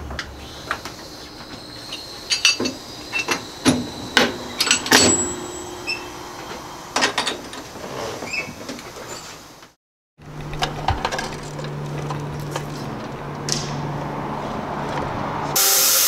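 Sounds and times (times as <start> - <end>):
metal handles clanking and clicking: 0.1 - 9.3, 10.3 - 13.8
metallic ring: 1.4 - 7.6.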